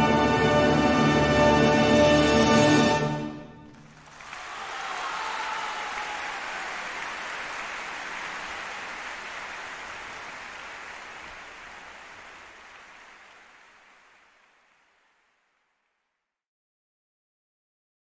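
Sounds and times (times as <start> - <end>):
audience applause: 3.6 - 15.8.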